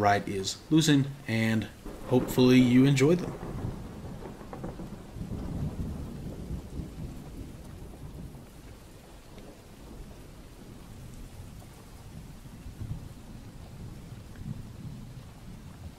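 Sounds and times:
faint hiss: 0.0s - 3.5s.

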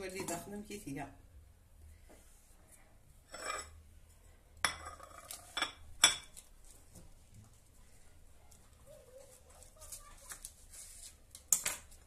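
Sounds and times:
dishes scraping on countertop: 3.3s - 3.8s, 4.6s - 6.4s
glassware clinking and knocking: 4.6s - 6.4s.

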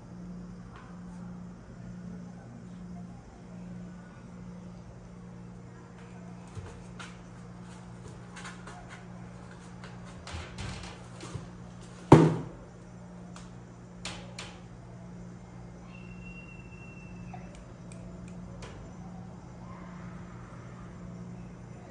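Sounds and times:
cardboard thump: 12.1s - 12.6s.

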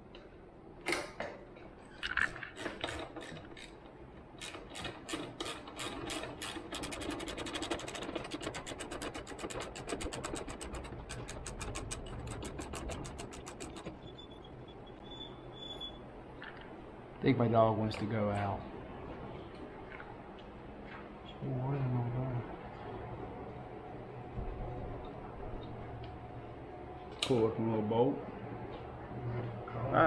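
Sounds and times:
ratchet pawl clicking: 4.4s - 14.2s.

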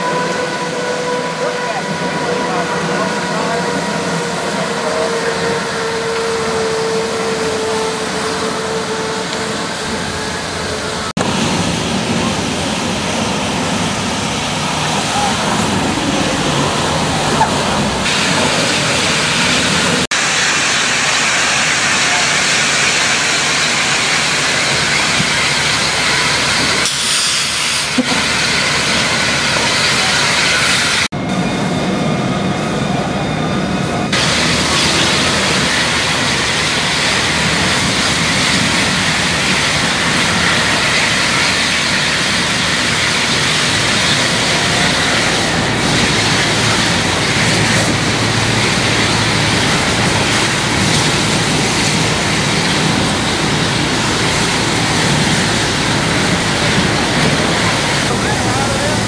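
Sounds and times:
fire hose hissing rush: 9.2s - 31.1s, 34.1s - 59.0s.

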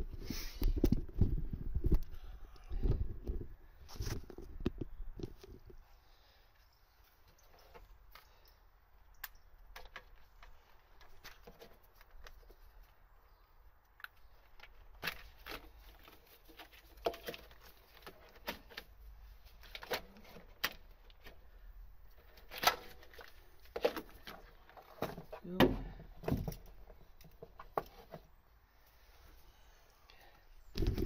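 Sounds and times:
hands clicking and tapping plastic parts: 9.0s - 13.0s, 13.8s - 28.3s.

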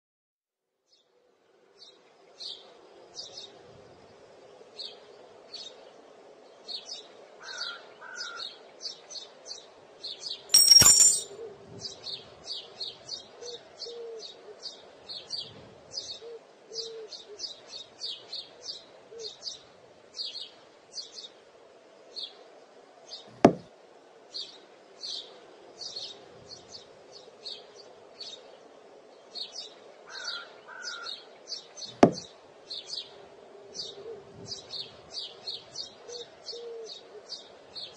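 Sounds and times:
steel boules clacking: 10.5s - 11.3s
sharp knock: 23.5s - 23.7s, 32.0s - 32.2s.

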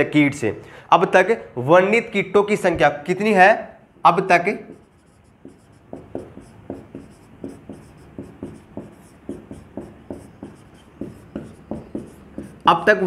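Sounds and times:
pen scratching and tapping: 4.7s - 12.9s.

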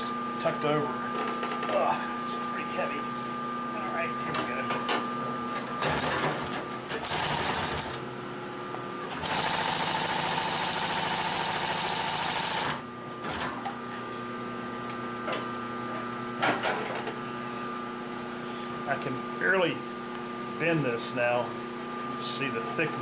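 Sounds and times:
steady hum: 0.0s - 13.1s, 17.1s - 23.0s
sewing machine stitching: 9.1s - 13.4s.

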